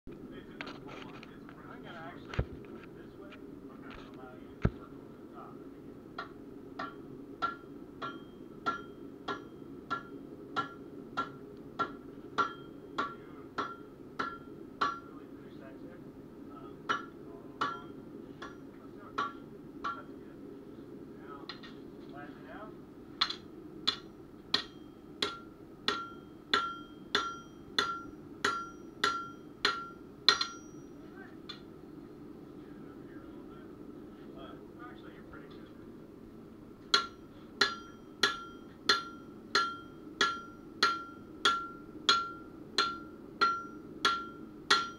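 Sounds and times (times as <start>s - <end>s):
hammer striking metal on anvil: 6.2s - 15.2s, 16.8s - 20.2s, 23.2s - 31.7s, 36.9s - 44.9s.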